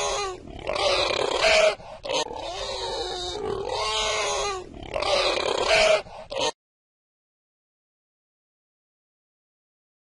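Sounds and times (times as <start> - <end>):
pig grunting: 0.0 - 6.6
pig high call: 0.0 - 6.6.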